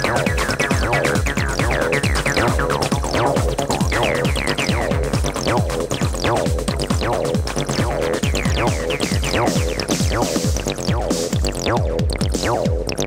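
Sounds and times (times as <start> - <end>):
acid synth line: 0.0 - 13.0
four-to-the-floor kick drum: 0.0 - 13.0.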